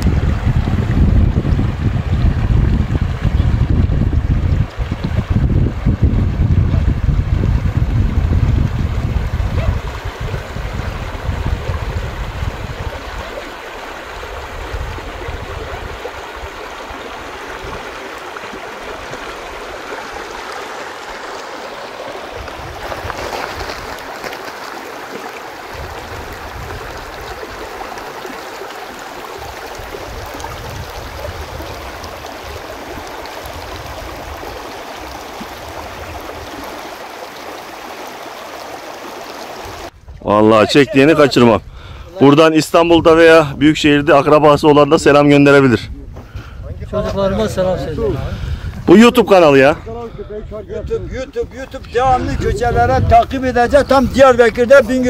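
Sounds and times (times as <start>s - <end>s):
wind buffeting microphone: 0.0s - 24.9s, 25.5s - 28.4s, 29.2s - 37.8s, 39.3s - 55.0s
running water: 0.0s - 55.0s.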